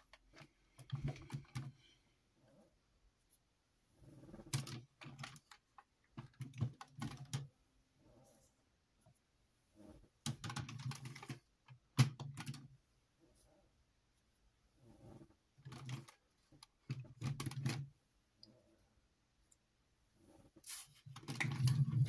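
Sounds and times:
plastic model parts clicking and rattling: 0:04.5 - 0:07.5, 0:10.2 - 0:12.7, 0:15.6 - 0:17.9, 0:21.1 - 0:22.0.

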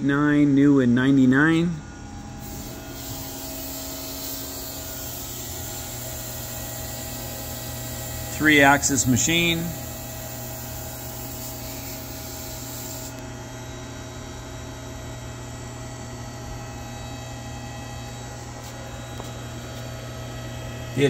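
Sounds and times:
mains hum: 0:00.0 - 0:21.0
electrical hiss: 0:02.4 - 0:09.7.

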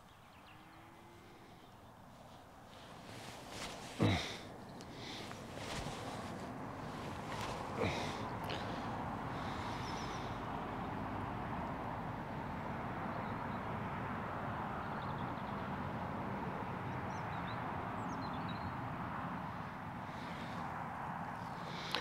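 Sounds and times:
low outdoor rumble: 0:00.0 - 0:13.3.

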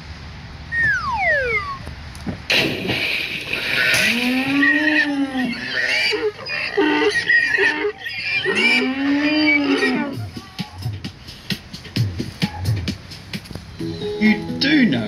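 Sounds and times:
burst of noise: 0:02.4 - 0:04.7
cow mooing: 0:04.2 - 0:10.2.

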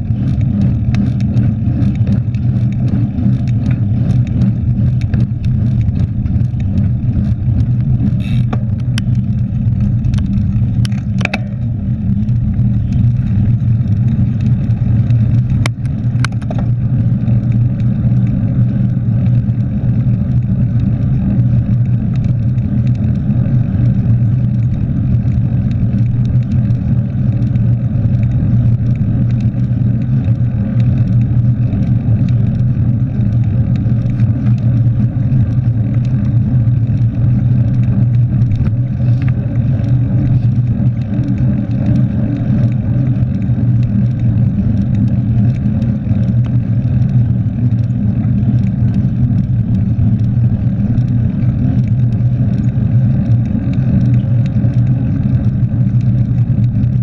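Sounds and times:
bike tyres rolling on asphalt: 0:00.0 - 0:57.0.

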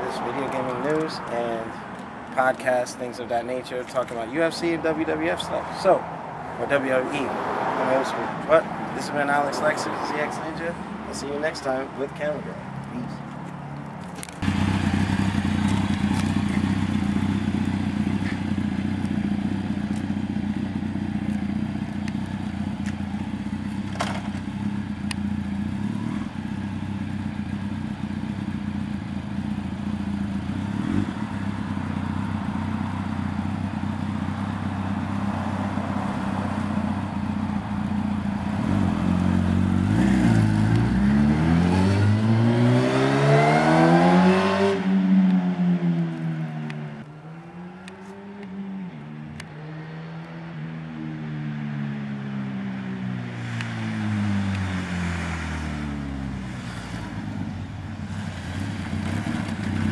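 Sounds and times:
motorcycle engine idling and revving: 0:00.0 - 0:59.9
motorcycle accelerating away: 0:14.4 - 0:37.2, 0:38.0 - 0:59.9.

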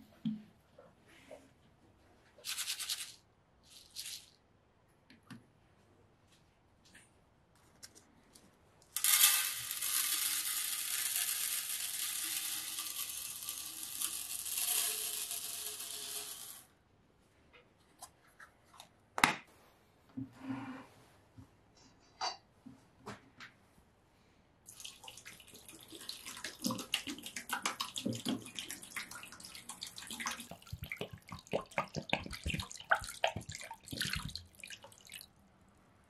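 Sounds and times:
crystals pouring onto metal: 0:09.0 - 0:16.7.

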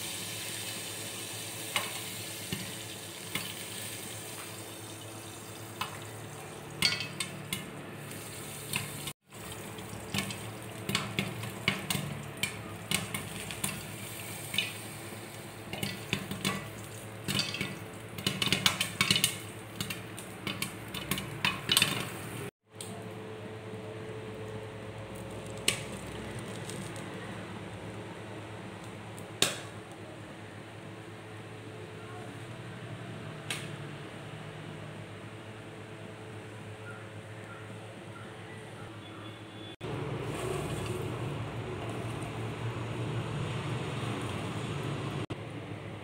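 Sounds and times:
oil sizzling: 0:00.0 - 0:22.5, 0:39.8 - 0:45.3
popcorn popping: 0:05.6 - 0:23.0, 0:24.4 - 0:27.2, 0:28.8 - 0:29.8.

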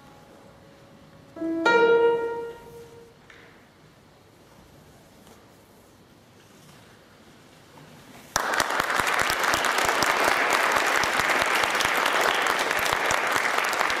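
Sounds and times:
audience applause: 0:08.3 - 0:14.0.

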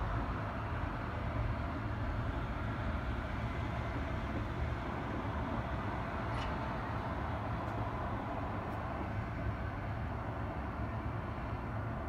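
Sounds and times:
distant city and railway rumble: 0:00.0 - 0:12.0.

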